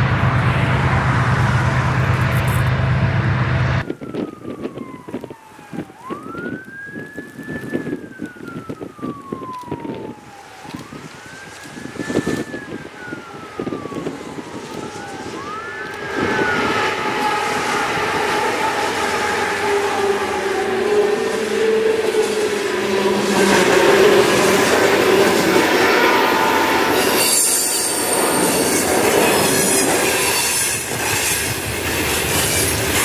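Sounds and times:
loud steady rumble: 0.0 - 4.0
siren wailing: 0.0 - 31.3.

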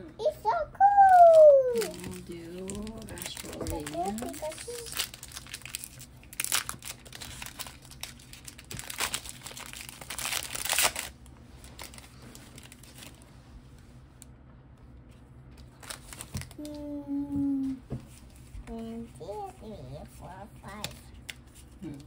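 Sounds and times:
foil wrapper crinkling and tearing: 1.0 - 13.2, 15.6 - 16.8
cards rustling: 1.1 - 13.2, 15.1 - 16.8.

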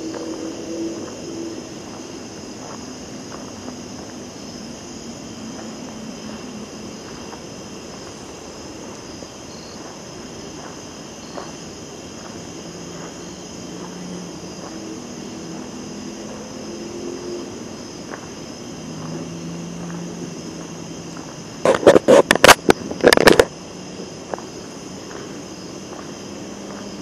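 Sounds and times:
crickets chirping: 0.0 - 27.0
distant engine drone: 0.0 - 27.0
footsteps on dirt path: 0.1 - 4.6, 9.1 - 15.6, 18.0 - 27.0.

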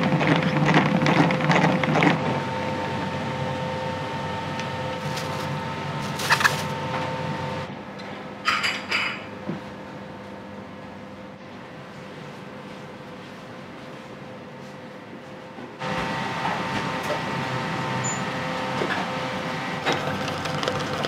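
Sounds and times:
gas wok burner roaring: 0.0 - 7.8.

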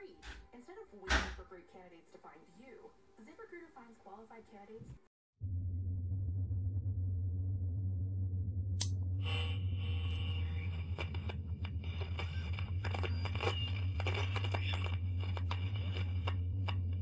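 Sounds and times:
low steady hum: 5.4 - 17.0
crackling static: 9.3 - 17.0.

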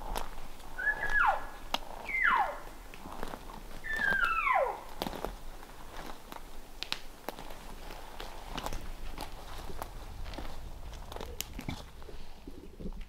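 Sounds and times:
footsteps crunching through deadfall: 0.0 - 12.7
elk calls: 0.7 - 2.8, 3.8 - 5.0.

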